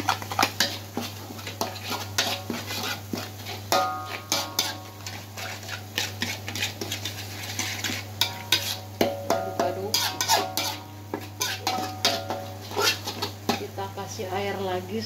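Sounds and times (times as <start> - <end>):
metal spatula scraping a wok: 0.0 - 13.7
wok ringing: 3.7 - 5.2, 8.2 - 13.7.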